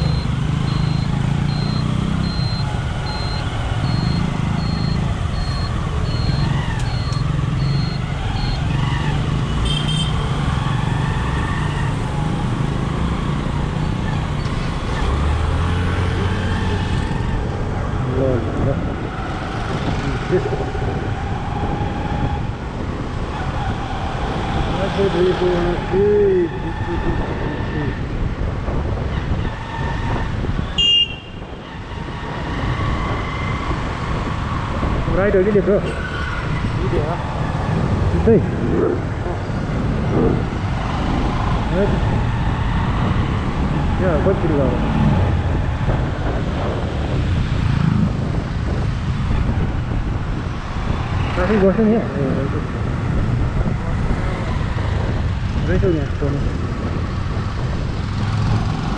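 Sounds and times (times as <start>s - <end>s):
high electronic beep: 0.0s - 8.7s
road traffic rumble: 0.0s - 58.9s.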